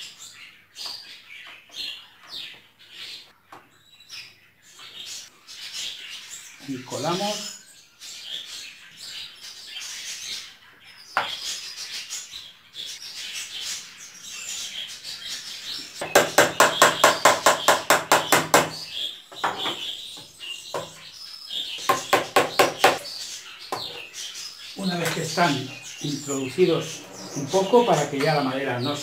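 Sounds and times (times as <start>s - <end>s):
hammer tapping small nails: 16.1s - 18.8s.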